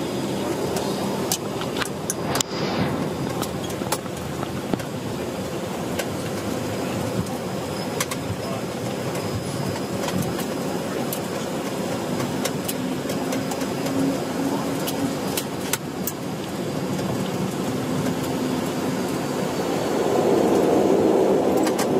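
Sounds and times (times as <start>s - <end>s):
turboprop engines droning: 0.0s - 21.9s.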